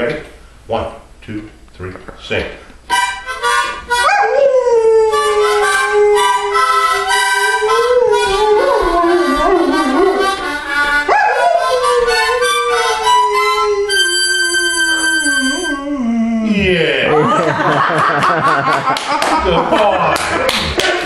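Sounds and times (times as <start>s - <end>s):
harmonica chords: 2.8s - 17.3s
dog howling: 4.0s - 10.4s, 11.1s - 16.6s.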